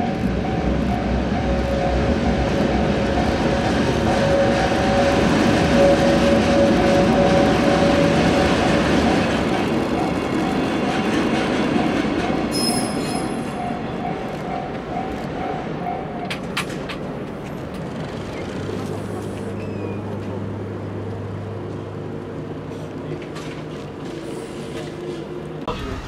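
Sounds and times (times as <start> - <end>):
train wheel squeal: 0.0 - 16.6, 18.0 - 20.3
two-tone crossing warning bell: 0.0 - 16.6
freight train rumbling: 0.0 - 26.0
road traffic hum: 15.7 - 26.0.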